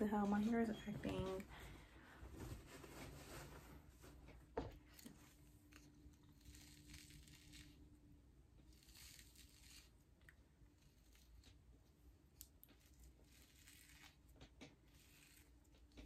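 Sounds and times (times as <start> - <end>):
hair brush scratching through hair: 8.7 - 10.0, 12.8 - 15.7.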